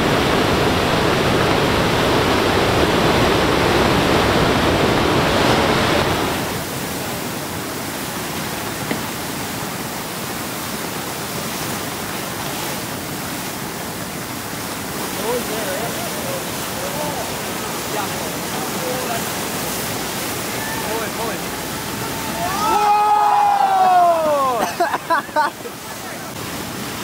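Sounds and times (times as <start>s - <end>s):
breaking surf: 0.0s - 27.0s
rushing floodwater: 0.0s - 27.0s.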